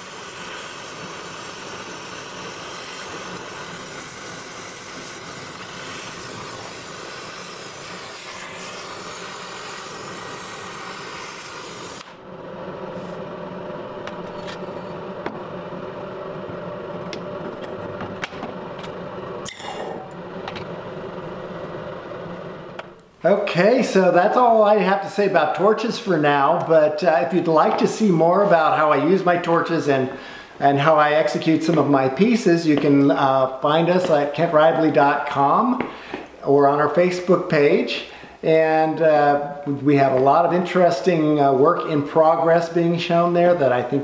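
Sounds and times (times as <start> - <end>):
torch flame hissing: 0.0 - 23.1
low steady hum: 12.0 - 23.9
sharp clicks and knocks: 17.0 - 19.6.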